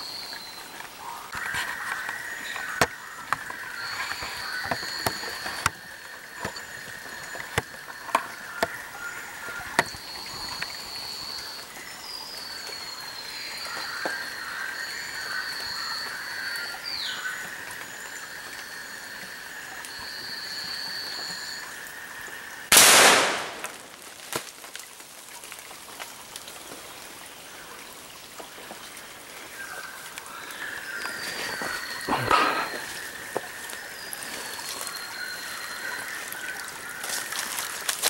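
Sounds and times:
gunshot: 22.7 - 23.8.

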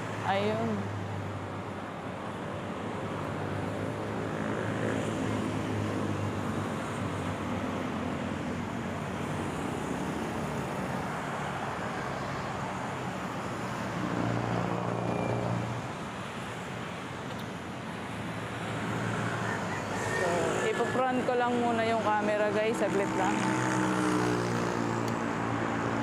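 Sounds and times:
road traffic passing: 0.0 - 26.0.

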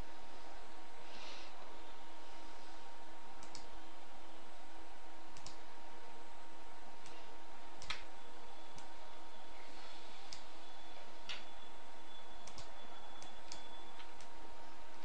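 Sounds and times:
faint high hum: 0.0 - 15.0
computer mouse clicking: 3.4 - 3.7, 5.3 - 5.6, 7.8 - 8.1, 8.7 - 8.9, 10.3 - 10.5, 12.4 - 14.3.

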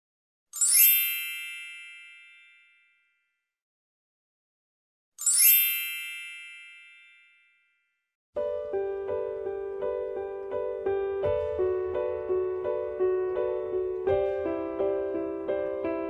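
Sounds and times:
bright metallic chimes: 0.6 - 3.0, 5.2 - 7.7
music: 8.4 - 16.0.

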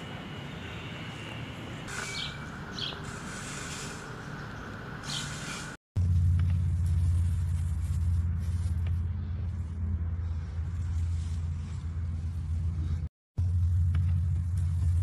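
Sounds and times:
steady low rumble: 6.0 - 15.0.

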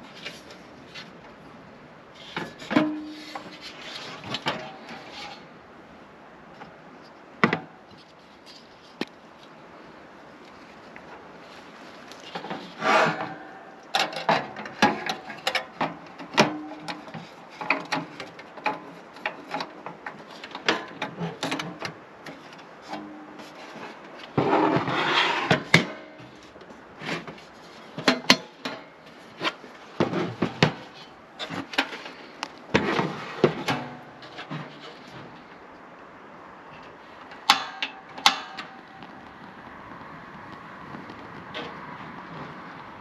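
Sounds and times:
rubbing or scraping: 2.2 - 5.6, 10.6 - 15.7, 16.3 - 35.6.

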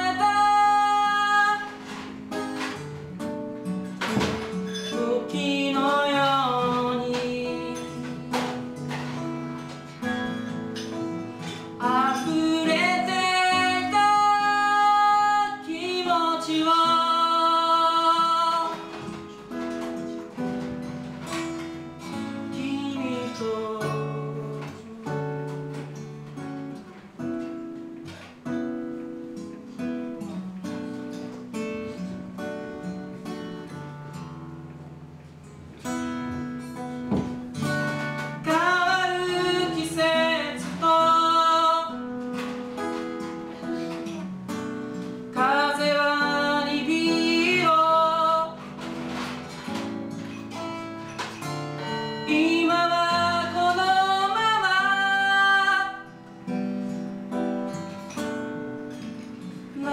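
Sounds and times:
acoustic guitar: 0.0 - 59.9
man singing: 38.4 - 42.0.

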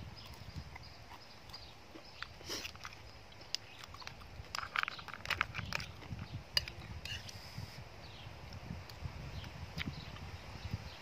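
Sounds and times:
person chewing: 0.1 - 7.4
metal spoon scraping plate: 6.6 - 7.5.

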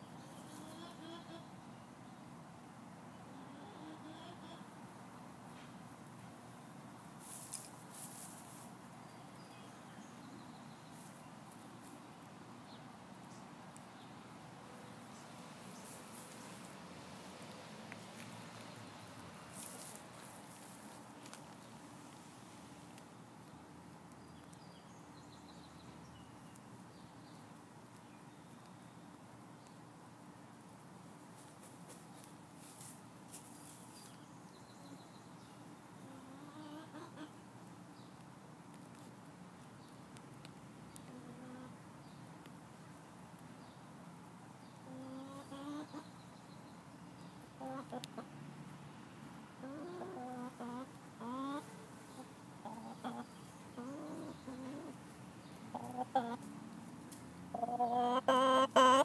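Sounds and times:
hen clucking softly: 0.4 - 1.5, 3.3 - 4.7, 36.0 - 37.4, 44.9 - 46.1, 49.6 - 55.0, 55.7 - 56.5, 57.5 - 59.0.

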